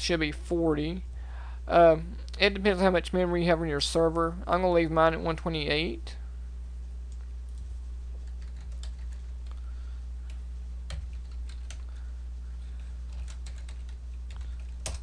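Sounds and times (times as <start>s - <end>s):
steady low hum: 0.0s - 15.0s
keyboard typing: 7.5s - 9.6s, 10.3s - 11.9s, 12.8s - 15.0s.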